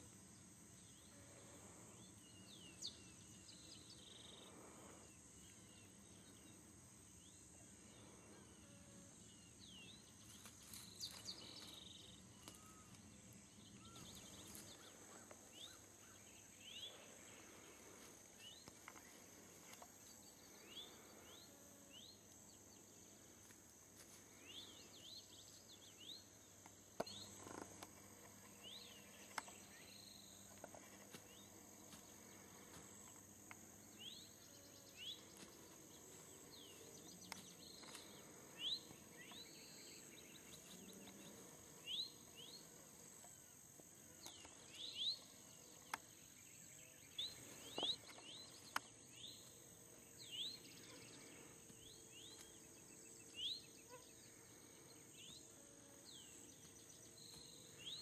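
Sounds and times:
high-pitched insect drone: 0.0 - 58.0.

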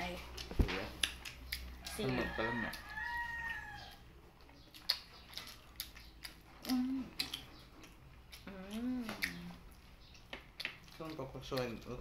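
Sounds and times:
mouth clicks and smacks: 0.3 - 1.7, 4.4 - 12.0
person humming mm: 6.6 - 7.3, 8.5 - 9.6.

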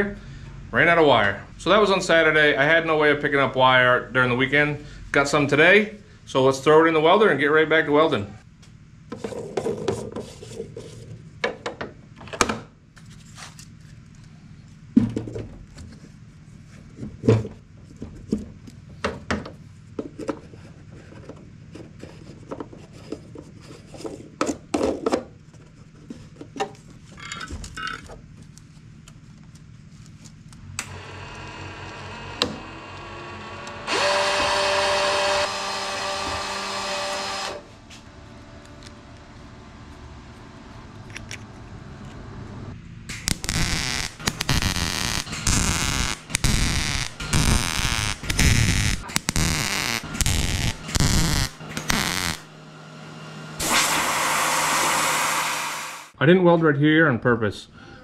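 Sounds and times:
wire feed motor whine: 30.8 - 41.4, 43.1 - 56.1.

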